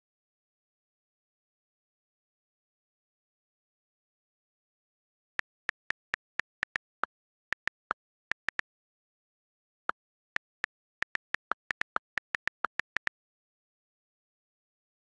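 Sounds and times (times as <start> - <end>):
on-screen keyboard key clicks: 5.4 - 8.6, 10.4 - 13.1.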